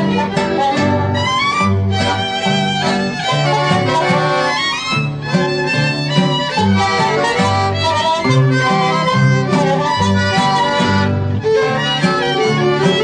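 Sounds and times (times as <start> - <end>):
bass line: 0.0 - 13.0
fiddle melody: 0.0 - 13.0
guitars: 0.0 - 13.0.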